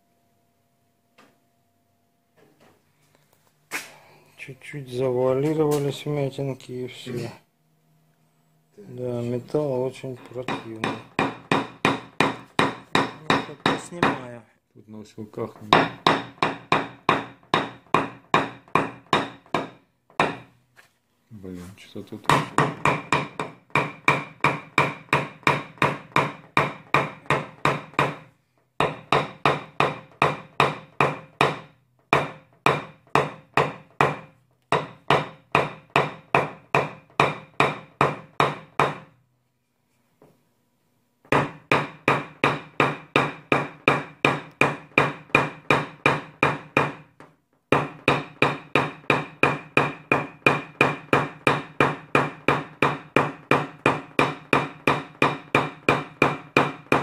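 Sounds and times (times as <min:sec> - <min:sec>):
hammer tapping punch on sheet metal: 0:10.2 - 0:14.3, 0:15.6 - 0:20.5, 0:22.3 - 0:39.2, 0:41.2 - 0:57.0.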